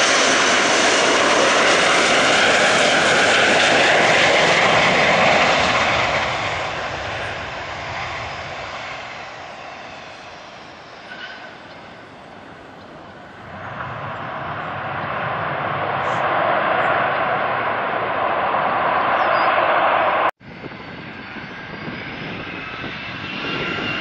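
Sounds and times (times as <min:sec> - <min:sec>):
jetliner engines overhead: 0:00.0 - 0:24.0.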